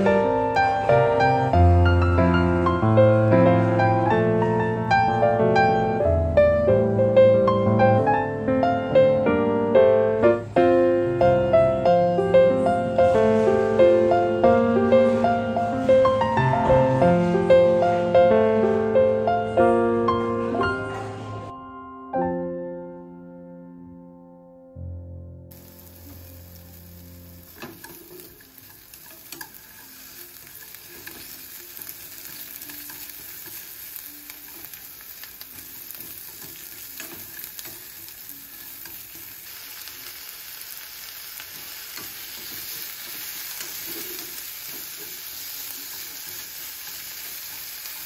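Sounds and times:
food sizzling in a frying pan: 0.0s - 5.1s, 11.8s - 18.8s, 25.5s - 48.0s
soft piano music: 0.0s - 48.0s.

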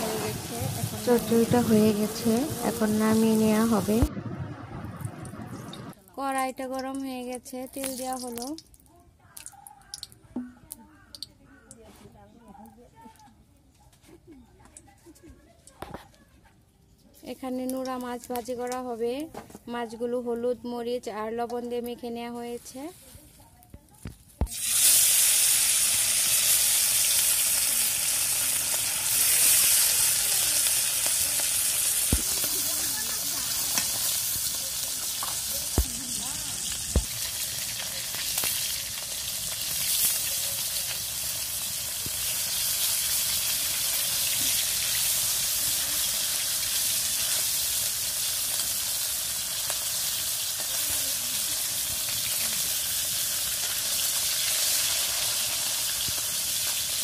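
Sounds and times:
fish sizzling in hot oil: 0.0s - 4.1s, 6.2s - 8.7s, 24.4s - 57.0s.

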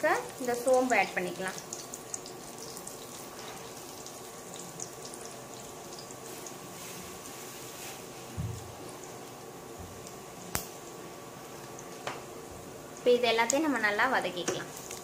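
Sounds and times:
oil sizzling in a pan: 0.0s - 15.0s.

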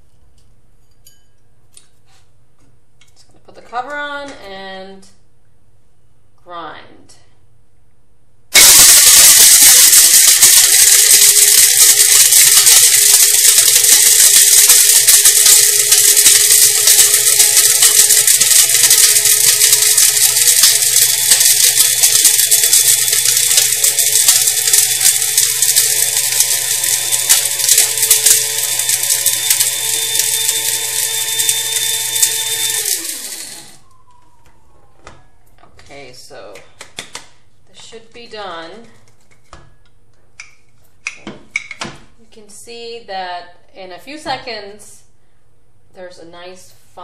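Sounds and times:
cinnamon sticks rattling in grinder: 8.6s - 33.8s
electric blade grinder motor: 8.6s - 33.8s.

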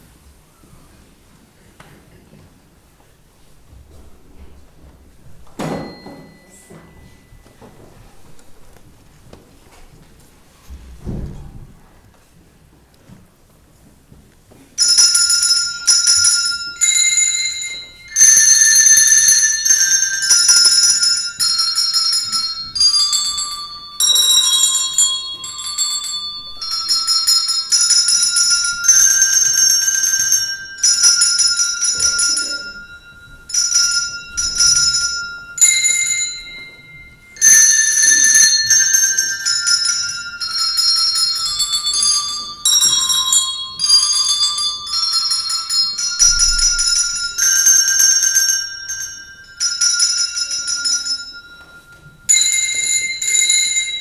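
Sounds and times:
handbell choir playing a hymn: 5.2s - 8.7s, 14.8s - 54.0s.

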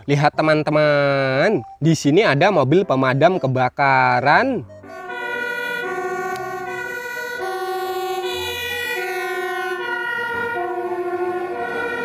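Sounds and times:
two-tone fire engine siren: 4.6s - 12.0s.

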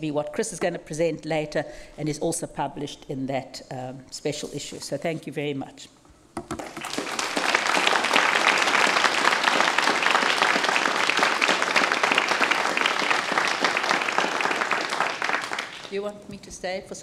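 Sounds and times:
audience applauding: 6.4s - 16.0s.

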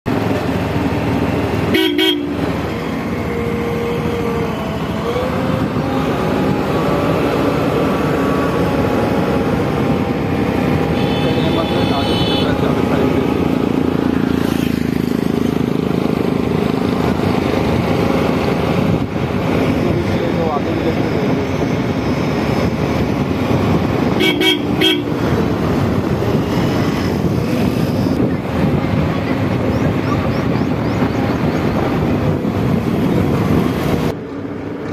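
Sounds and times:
diesel engine running: 0.1s - 34.9s
horn toots: 1.7s - 2.5s, 11.0s - 12.9s, 24.2s - 25.4s.

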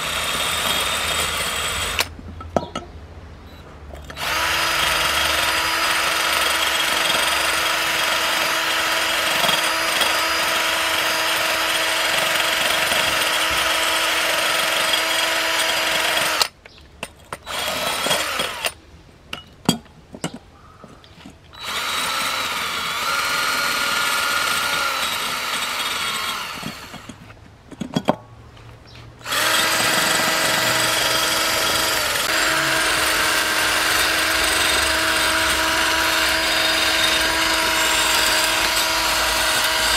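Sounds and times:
drill clicks: 4.0s - 16.6s, 21.6s - 27.2s, 29.2s - 39.9s
drill wire brush scraping pipe: 29.2s - 39.9s.

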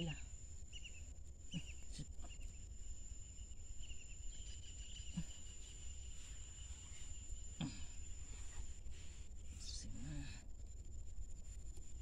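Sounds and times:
bird chirps: 0.0s - 8.6s
high insect drone: 0.0s - 12.0s.

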